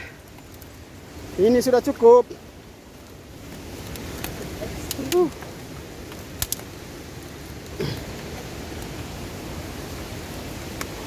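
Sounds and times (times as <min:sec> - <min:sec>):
waterfall rushing: 0:03.2 - 0:11.0.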